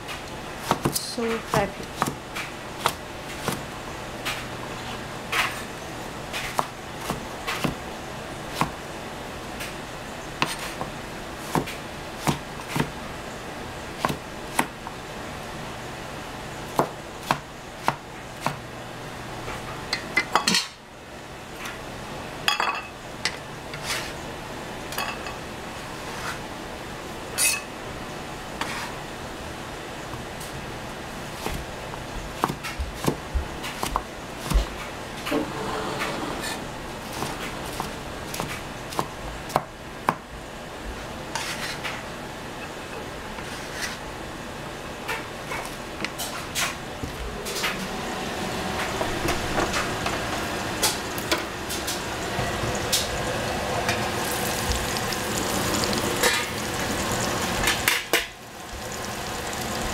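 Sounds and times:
cleaver chopping on plastic board: 11.5s - 12.9s.

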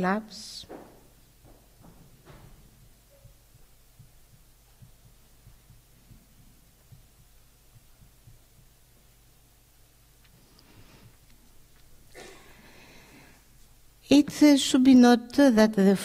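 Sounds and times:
low electrical hum: 0.0s - 16.0s
soft low thumps: 0.6s - 10.3s.

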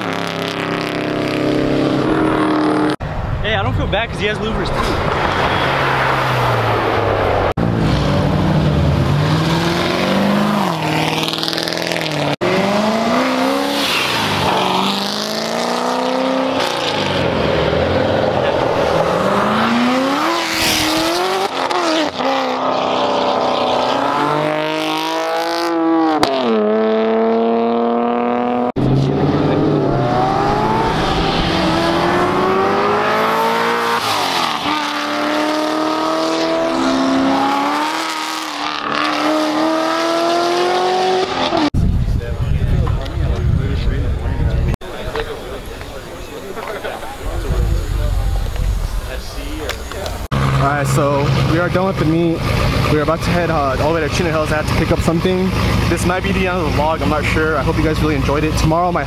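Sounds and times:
cars accelerating past: 4.7s - 41.7s, 47.2s - 58.7s.

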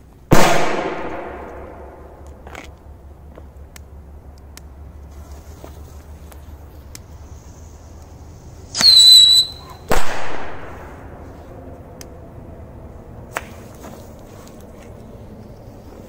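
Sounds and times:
firecracker bang echoing: 0.3s - 2.2s, 8.8s - 11.0s
firework whistle: 8.7s - 9.9s.

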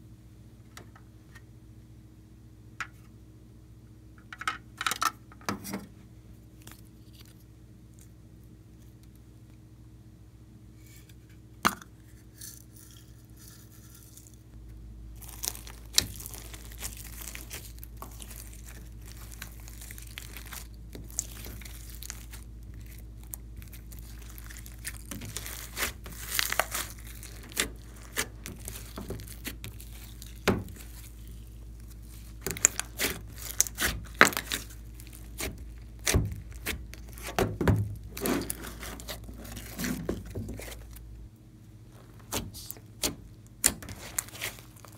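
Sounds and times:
sticky crackles and pops: 15.2s - 41.0s, 41.9s - 44.9s
hands squishing slime: 15.2s - 41.1s, 41.8s - 44.9s.

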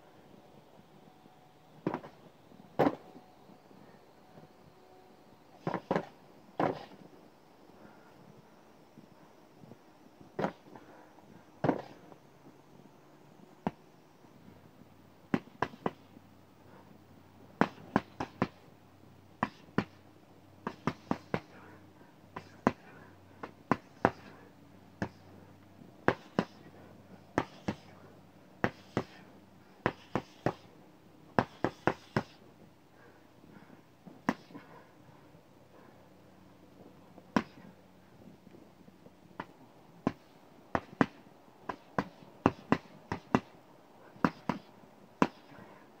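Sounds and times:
punches smacking speed bag: 17.6s - 18.6s, 26.1s - 26.6s, 27.4s - 27.8s, 28.6s - 29.2s, 31.4s - 32.4s, 39.4s - 43.5s, 44.2s - 45.5s.

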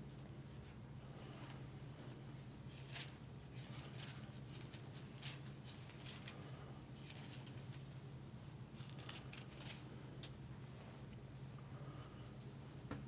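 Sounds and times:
steady low hum: 0.0s - 13.0s
thin pages rustling: 2.7s - 10.4s.

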